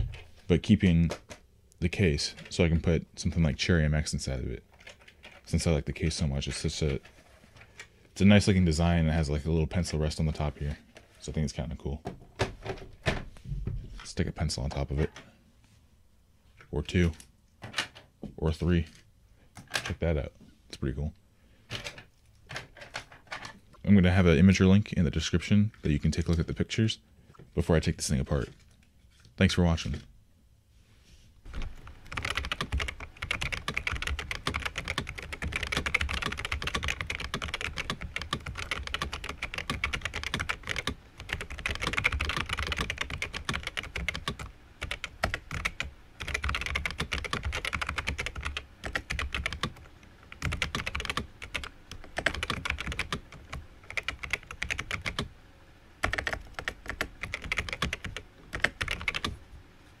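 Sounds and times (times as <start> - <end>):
fast typing on clicky keyboard: 31.6 - 55.3, 56.0 - 59.4.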